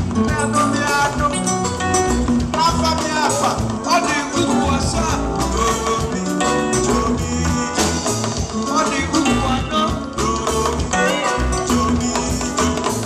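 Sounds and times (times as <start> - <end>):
upbeat band music: 0.0 - 13.0.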